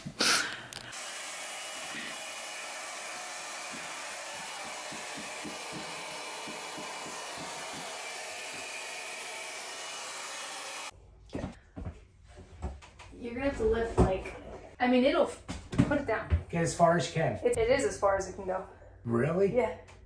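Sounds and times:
heat gun blowing: 0.0s - 10.9s.

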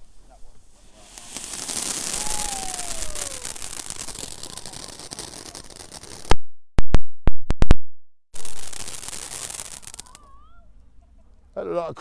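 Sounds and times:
firework hissing: 0.0s - 6.3s, 8.4s - 10.3s
sharp firework bangs: 0.8s - 7.8s
faint falling whistle: 2.1s - 3.6s.

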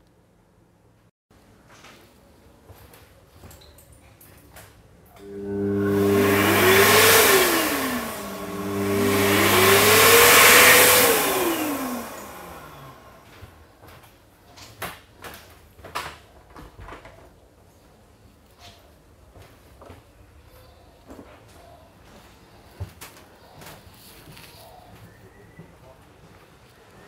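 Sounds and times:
electric hand dryer blowing: 5.2s - 13.6s.

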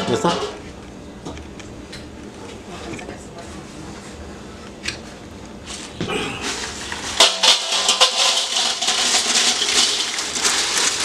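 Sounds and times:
tortilla chips rattling in metal bowl: 6.4s - 11.0s.

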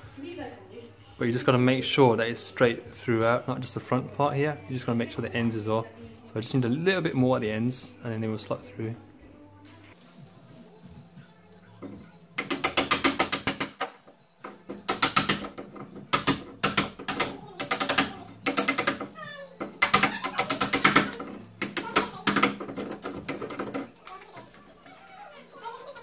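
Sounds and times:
wood chisel paring wood: 12.4s - 23.9s.

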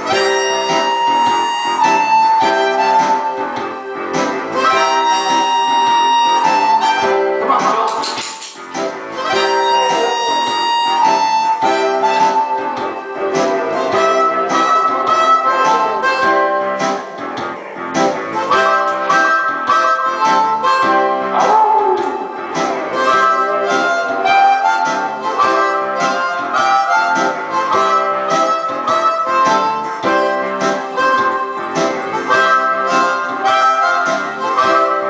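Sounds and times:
blues harmonica: 0.0s - 35.0s
rhythmic guitar backing: 0.0s - 35.0s.

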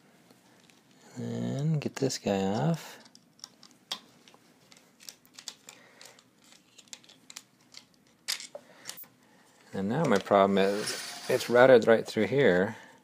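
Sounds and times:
plastic parts being handled: 2.6s - 12.6s.

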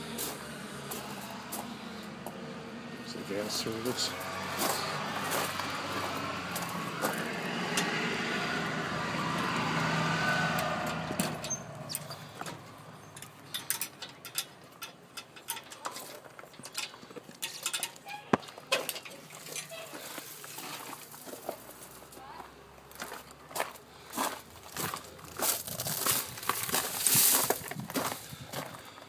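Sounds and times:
footsteps on concrete: 0.2s - 2.4s, 4.5s - 7.2s, 20.0s - 29.0s.

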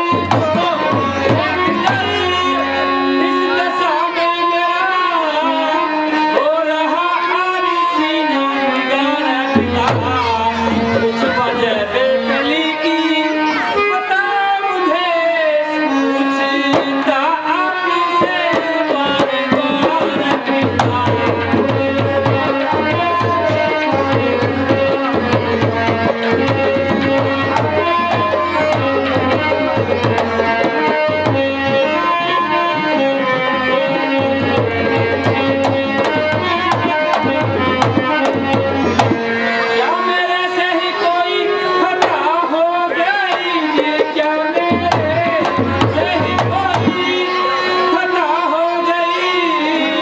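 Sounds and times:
hand-drum rhythm: 0.0s - 3.6s, 8.7s - 12.4s, 16.0s - 39.8s, 41.7s - 47.9s.

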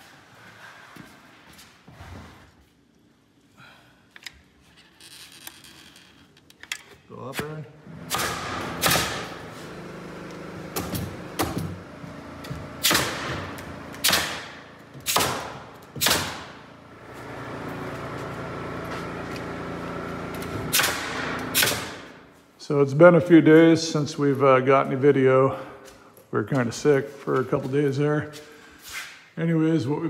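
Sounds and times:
steady mechanical hum: 0.0s - 29.2s
nail gun firing into wood: 8.0s - 9.4s, 10.7s - 11.8s, 12.4s - 16.6s, 20.4s - 22.2s.

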